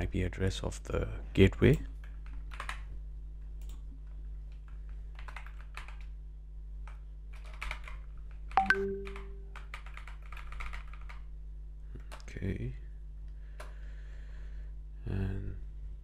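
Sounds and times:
low electrical hum: 0.0 - 16.0
computer keyboard typing: 2.0 - 2.9, 4.5 - 6.2, 6.8 - 11.3
held low tone: 8.6 - 9.6.

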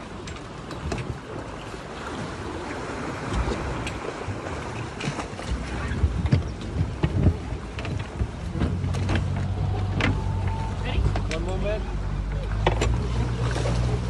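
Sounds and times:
knocks and thumps on inflatable boat: 0.0 - 14.0
sea surge: 0.0 - 14.0
wind on microphone: 0.8 - 11.3
low rumble: 5.5 - 14.0.

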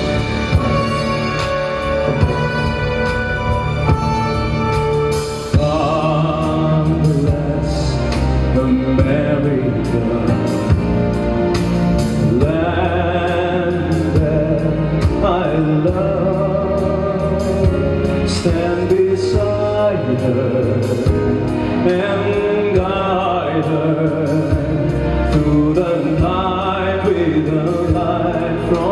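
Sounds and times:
backing track: 0.0 - 28.9
man singing into a microphone: 5.5 - 10.9, 12.2 - 28.9.

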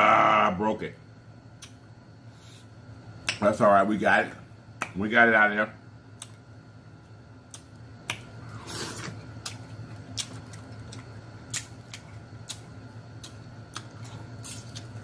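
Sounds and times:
eating slurp: 8.5 - 9.2
crab shell cracking: 9.4 - 15.0.

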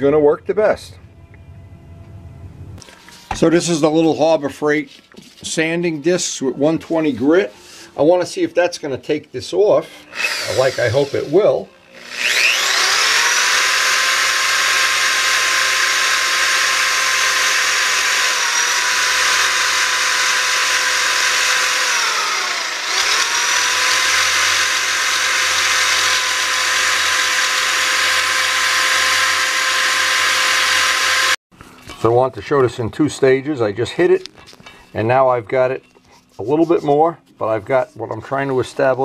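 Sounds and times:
rotary tool whine: 9.8 - 31.4.

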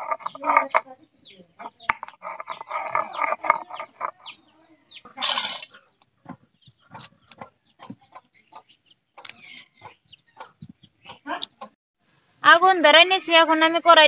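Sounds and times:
grinding on stone slab: 0.0 - 0.9, 1.8 - 4.2, 5.2 - 5.7
chickens clucking: 0.0 - 11.8
loud rasp: 2.0 - 4.1.

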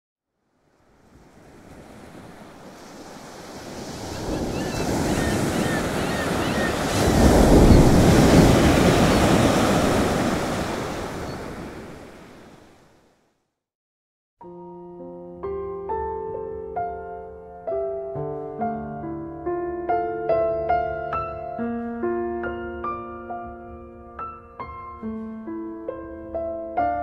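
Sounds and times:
ocean waves breaking: 0.6 - 13.1.

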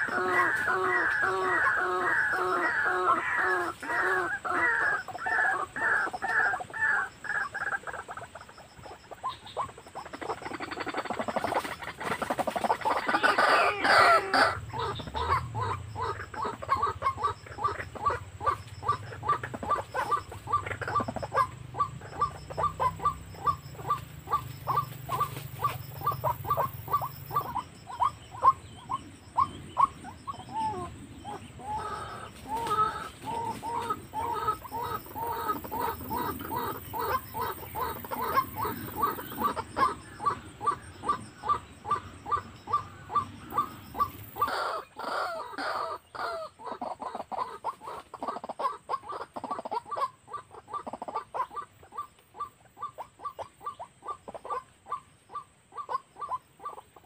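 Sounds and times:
waterhen croaking calls: 0.0 - 57.0.

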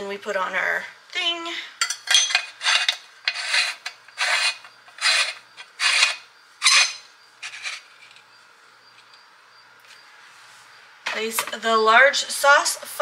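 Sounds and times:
parts scraping as twisted: 2.1 - 8.3.

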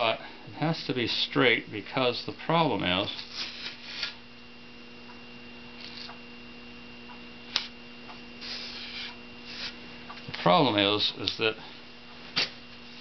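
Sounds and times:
steady electrical hum: 0.0 - 13.0.

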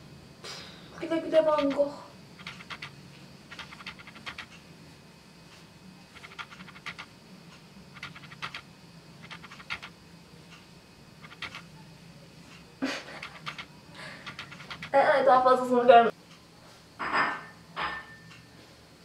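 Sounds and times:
low room hum: 0.0 - 19.0.

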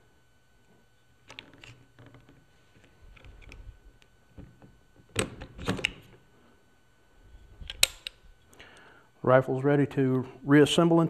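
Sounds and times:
trigger mechanism clicks: 7.6 - 8.3.

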